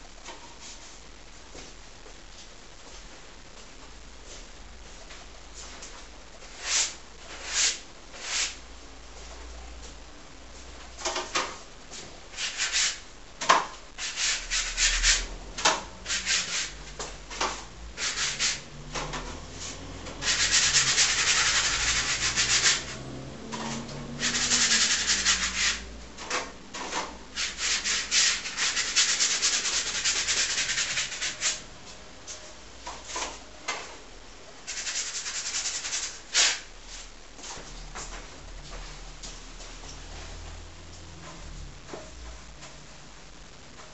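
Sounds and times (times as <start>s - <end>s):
paintbrush scrubbing on canvas: 12.3s - 13.0s, 14.0s - 15.3s, 19.5s - 23.0s, 24.2s - 25.9s, 27.4s - 31.6s, 34.7s - 37.1s.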